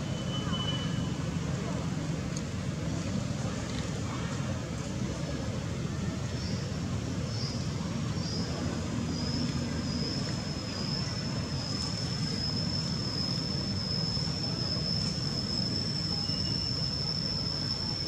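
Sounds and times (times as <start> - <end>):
thin high whine: 8.1 - 18.0.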